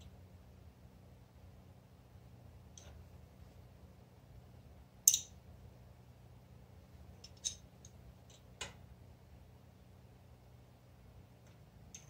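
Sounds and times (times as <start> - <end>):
metallic clinks of hand wrenches: 5.1 - 5.3.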